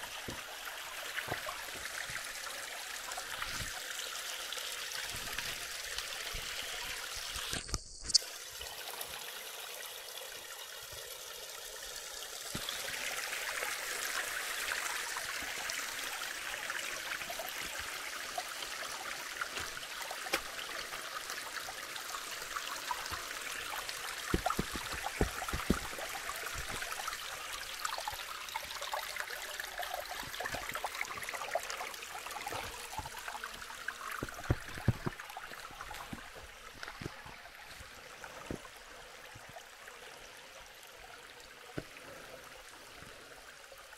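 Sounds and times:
creek water running: 0.0s - 43.9s
sharp knocks: 24.3s - 26.0s.

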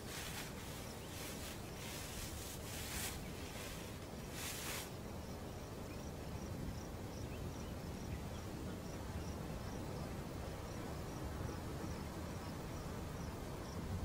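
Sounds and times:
insect chirping: 0.0s - 13.9s.

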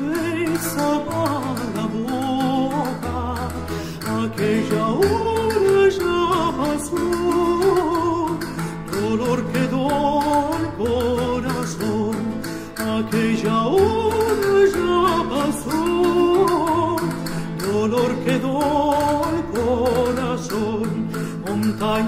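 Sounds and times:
high male voice singing with vibrato: 0.0s - 22.0s
light percussion ticks: 0.0s - 22.0s
plucked guitar: 0.0s - 22.0s.

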